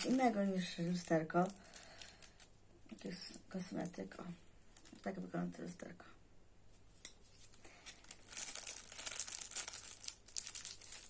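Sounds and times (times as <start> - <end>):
packaging crinkling and rustling: 0.0 - 3.1, 7.4 - 11.0.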